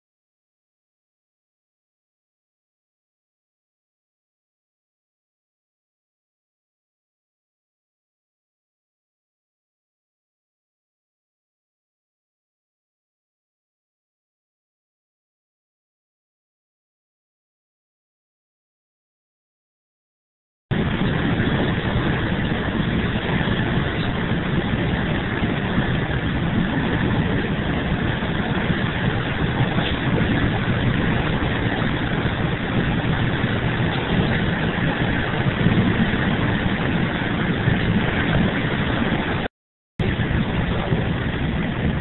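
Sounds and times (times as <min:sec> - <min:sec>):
bus engine and road noise: 0:20.7 - 0:42.0.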